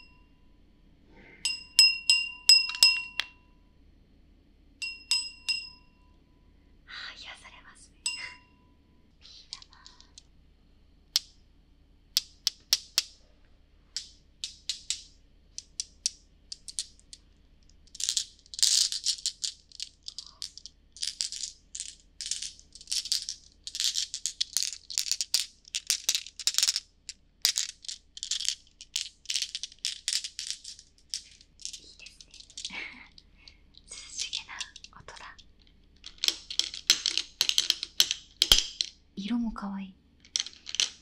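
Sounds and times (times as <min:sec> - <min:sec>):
glass marbles clinking: 0:00.0 - 0:00.3, 0:01.4 - 0:03.5, 0:04.8 - 0:06.0, 0:08.1 - 0:08.6, 0:14.0 - 0:17.3, 0:17.9 - 0:33.2, 0:33.8 - 0:39.0, 0:40.3 - 0:41.0.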